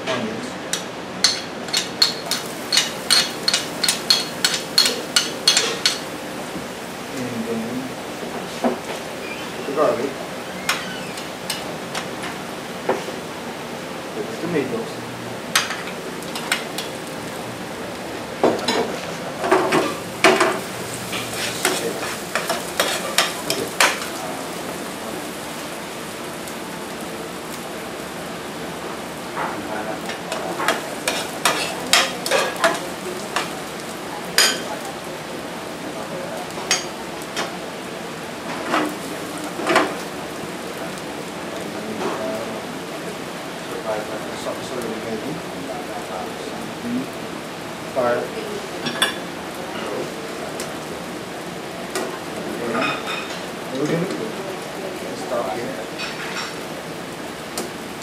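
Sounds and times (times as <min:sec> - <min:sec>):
vegetables sizzling in a frying pan: 0:00.1 - 0:58.0
metal spoon scraping a pan: 0:21.1 - 0:24.1, 0:31.0 - 0:32.8.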